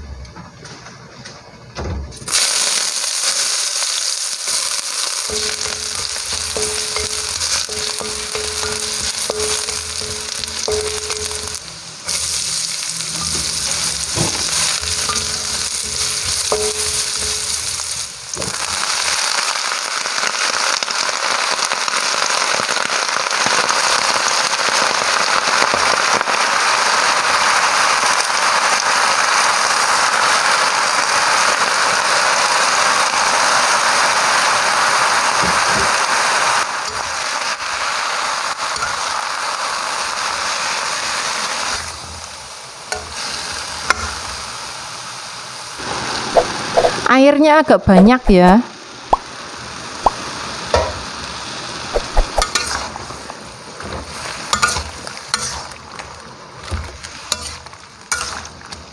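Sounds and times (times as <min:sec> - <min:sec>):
stir-fry sizzling in wok: 0:02.2 - 0:58.9
metal spatula knocking wok: 0:05.2 - 0:12.3, 0:13.1 - 0:18.7, 0:54.6 - 0:55.6.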